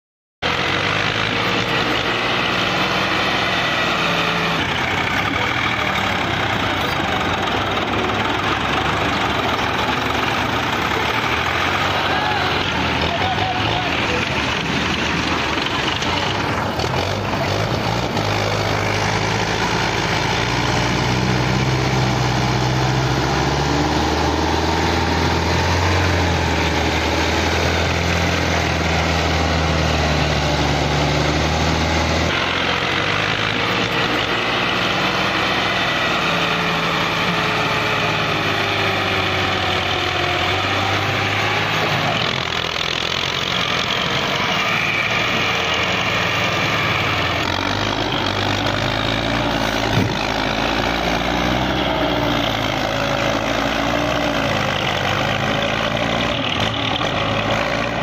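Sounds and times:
tractor diesel engines running: 0:00.4 - 0:58.0.

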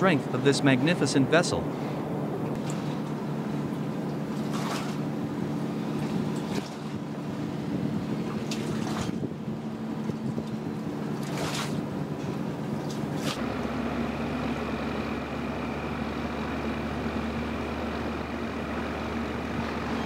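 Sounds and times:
boat engine droning: 0:00.0 - 0:20.0.

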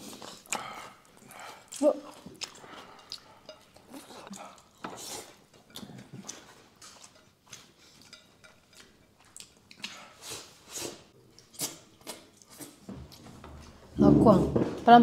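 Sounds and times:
chewing and lip smacks: 0:00.0 - 0:10.5.

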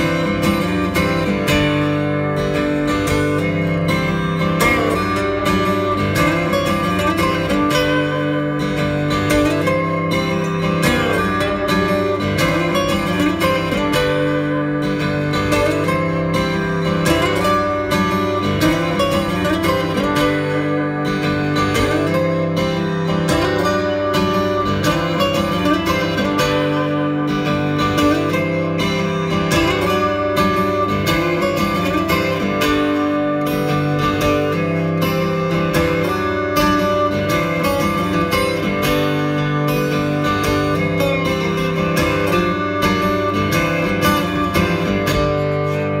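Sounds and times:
acoustic guitar: 0:00.0 - 0:46.0.

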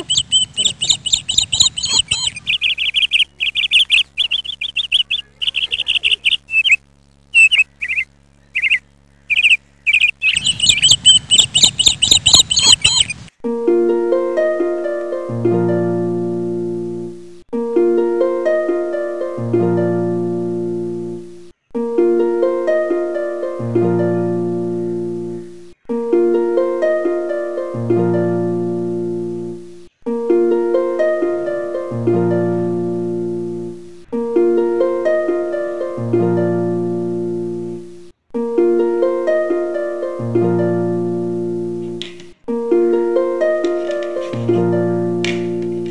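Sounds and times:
instrumental music with decaying notes: 0:13.4 - 0:45.9.

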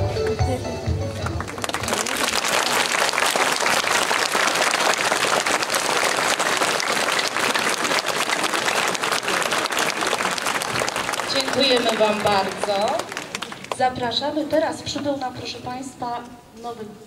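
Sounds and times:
audience applauding: 0:01.2 - 0:14.0.

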